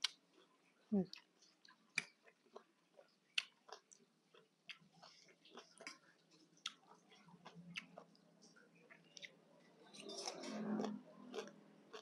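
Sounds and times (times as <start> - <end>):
crisp crunches of chewing: 8.9 - 12.0.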